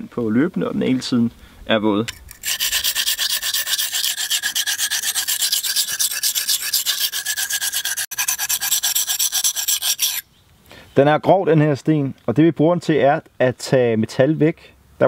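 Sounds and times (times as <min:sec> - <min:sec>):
knife scraping on whetstone: 0:02.1 - 0:10.2.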